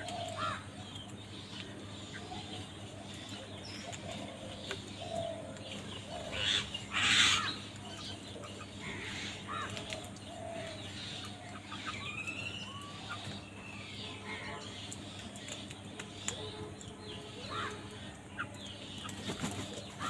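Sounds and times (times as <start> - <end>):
crows harsh calls: 0.0 - 0.7, 6.1 - 7.7, 8.8 - 11.9, 17.3 - 18.1
bird chirps and calls: 0.0 - 20.0.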